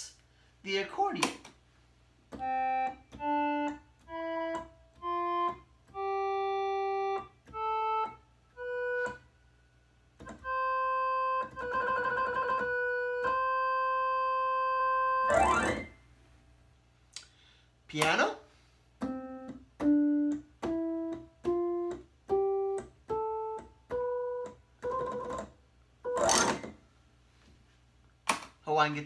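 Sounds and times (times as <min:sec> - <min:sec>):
electronic organ accordion tone: 0:02.4 - 0:09.4, 0:10.2 - 0:16.0, 0:19.0 - 0:25.4.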